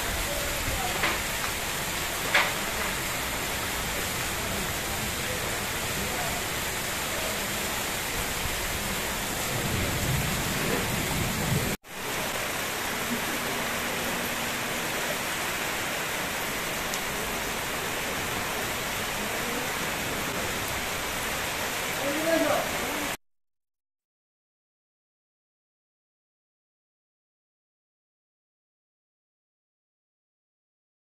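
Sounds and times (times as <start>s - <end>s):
heavy rain on paving: 0.0s - 23.2s.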